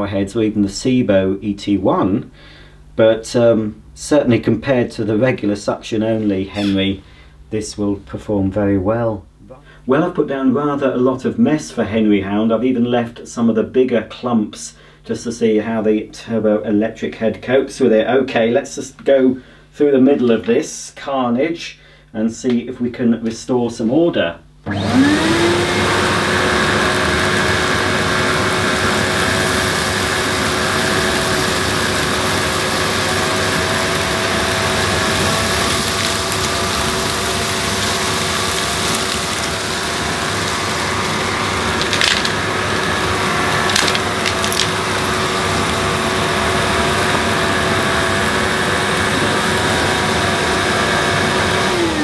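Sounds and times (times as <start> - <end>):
vacuum cleaner running on carpet: 24.7 - 52.0
debris rattling in vacuum: 24.8 - 51.8.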